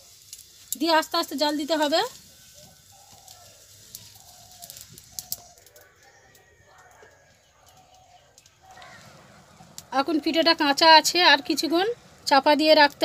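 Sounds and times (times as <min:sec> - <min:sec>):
faint chickens clucking: 0:02.4 - 0:09.8
sharp clicks: 0:04.6 - 0:06.4.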